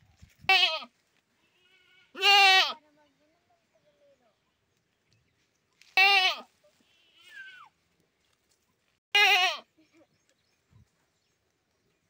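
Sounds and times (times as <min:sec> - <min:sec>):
goat bleating: 0:00.5 - 0:02.8, 0:06.0 - 0:07.7, 0:09.2 - 0:09.8.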